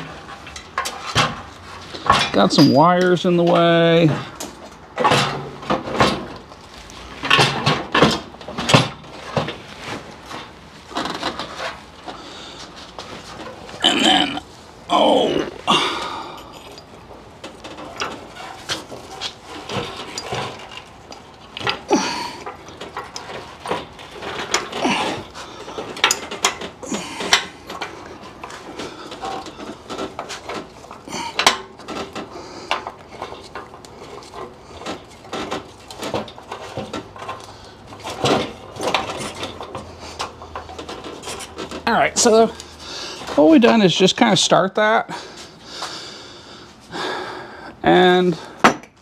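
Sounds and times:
metal tools clinking: 0.2s - 6.2s, 15.7s - 44.3s.

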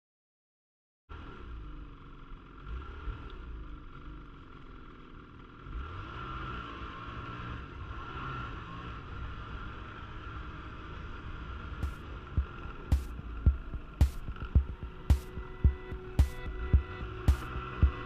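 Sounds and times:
snowmobile engine running: 10.9s - 18.0s.

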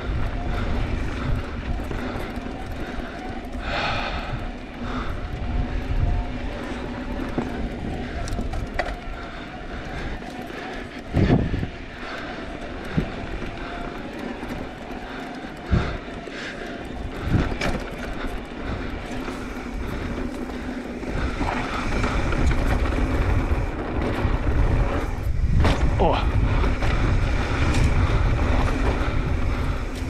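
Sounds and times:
bike rattle: 0.0s - 30.0s
wind rush on microphone: 0.0s - 30.0s
bike landing thump: 25.5s - 26.0s.

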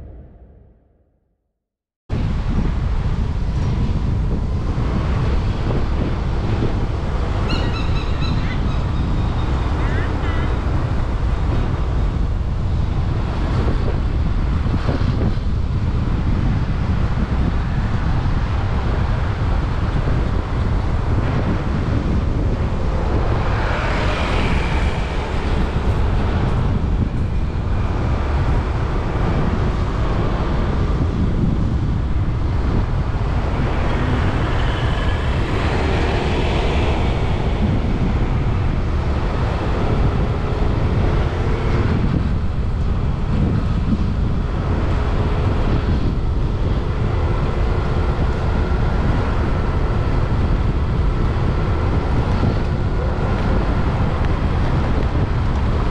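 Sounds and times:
wind rumbling on microphone: 0.0s - 1.0s, 2.1s - 55.9s
traffic on wet pavement: 2.9s - 55.9s.

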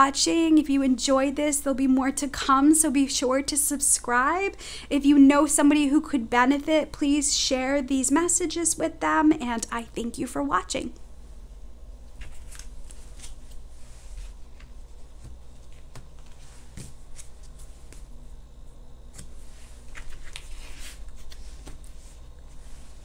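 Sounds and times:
cards being shuffled: 12.2s - 18.2s, 19.1s - 23.0s.

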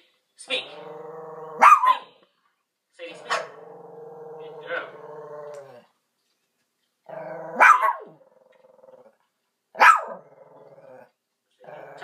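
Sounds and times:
dog growling: 0.6s - 1.7s, 3.1s - 5.9s, 7.1s - 9.3s, 10.0s - 12.0s
dog barking: 1.6s - 2.1s, 7.6s - 8.2s, 9.8s - 10.2s.

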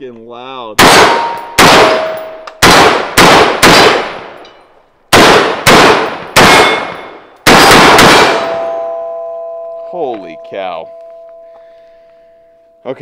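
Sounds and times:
rifle shots with metallic ring: 0.8s - 9.8s.

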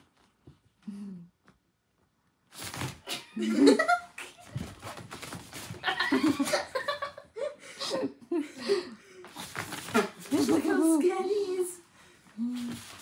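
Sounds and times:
people laughing: 3.1s - 4.5s, 5.8s - 9.0s.

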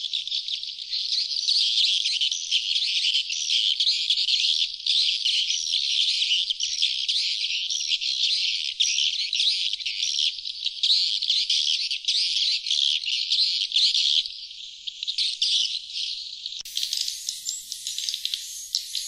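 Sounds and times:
swiftlets twittering: 16.6s - 19.0s.

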